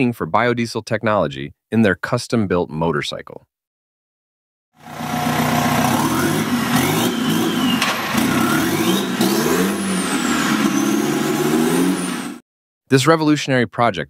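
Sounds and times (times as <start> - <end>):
diesel engine revving: 4.8 - 12.4
thin high whistle: 6.1 - 7.8.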